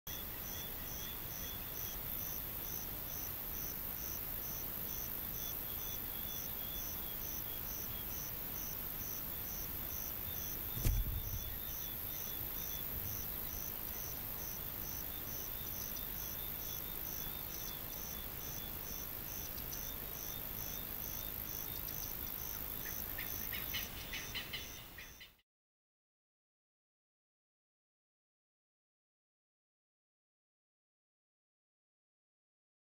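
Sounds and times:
insects chirping: 0.1 - 25.2
low thump: 10.7 - 11.6.

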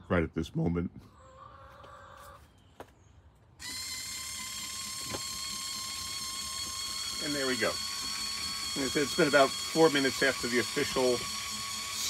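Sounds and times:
motor whining: 3.5 - 12.0.

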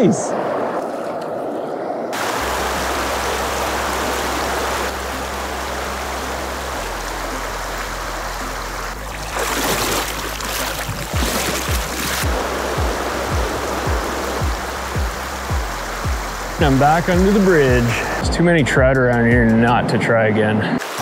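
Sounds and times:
river water rushing over rocks: 2.2 - 18.2
low bass notes: 2.2 - 20.0
music beat thumps: 10.9 - 19.8.

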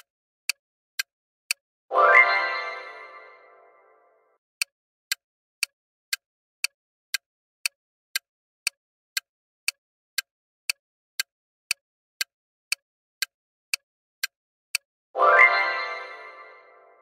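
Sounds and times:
clock ticks: 0.0 - 3.0, 4.6 - 16.6.

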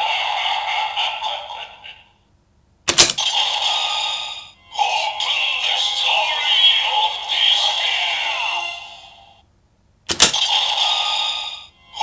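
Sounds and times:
toy electronic voice: 0.0 - 2.1, 3.2 - 9.1, 10.3 - 12.0
synthesised toy music: 3.2 - 9.2, 10.3 - 12.0.

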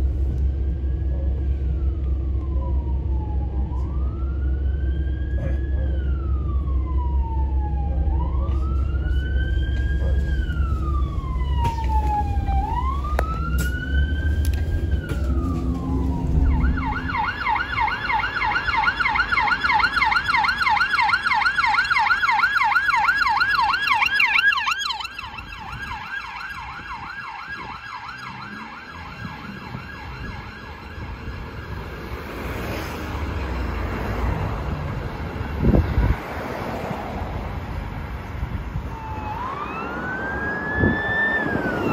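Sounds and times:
deep rumble: 0.0 - 17.7
police siren yelping: 0.0 - 36.8, 38.7 - 41.9
police siren wailing: 0.0 - 41.9.

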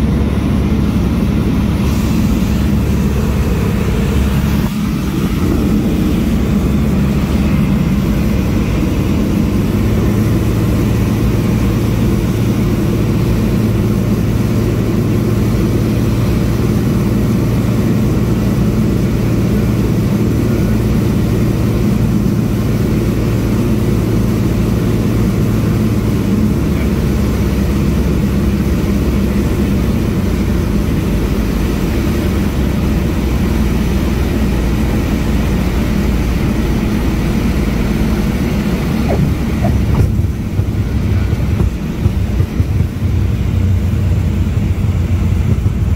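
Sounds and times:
propeller airplane engine: 0.0 - 45.9
air rushing past: 38.4 - 43.1.

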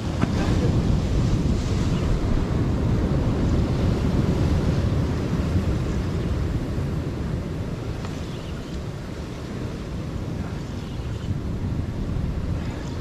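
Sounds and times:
surf breaking against rocks: 0.0 - 10.4
wind buffeting microphone: 0.0 - 13.0.

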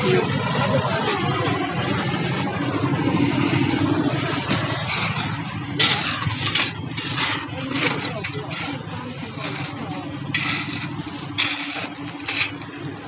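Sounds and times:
engine running: 0.0 - 13.0
shovels scraping crushed stone: 4.4 - 13.0.

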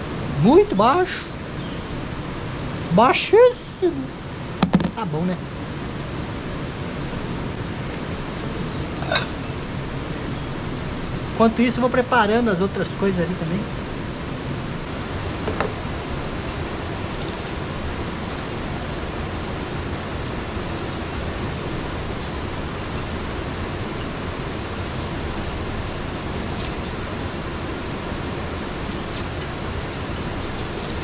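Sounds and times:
river water rushing: 0.0 - 31.0.

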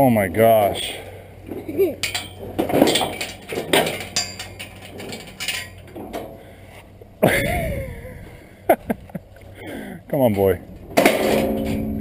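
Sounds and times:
metal gate and chain clinking: 1.5 - 6.5, 10.3 - 12.0.

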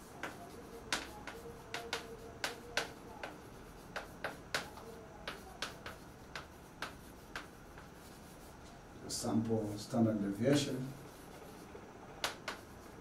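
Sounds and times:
chalk tapping and scraping on board: 0.0 - 8.8, 10.4 - 13.0.

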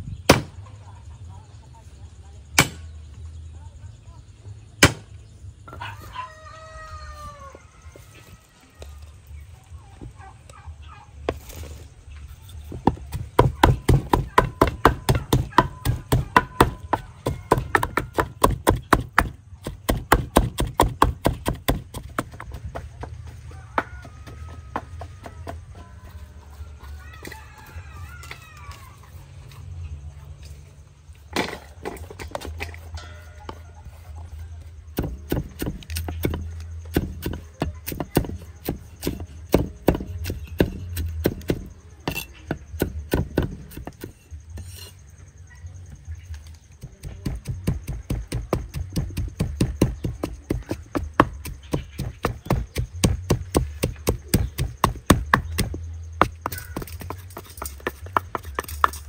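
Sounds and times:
cleaver chopping on wooden block: 0.3 - 0.5, 2.6 - 2.9, 4.8 - 5.1, 12.8 - 23.1, 35.0 - 44.2, 46.8 - 59.0.

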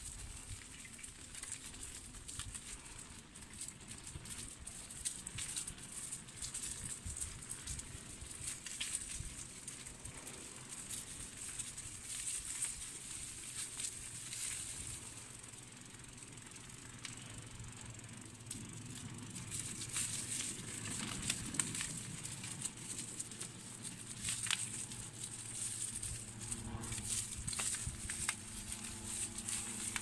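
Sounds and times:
footsteps crunching on gritty path: 19.4 - 30.0.

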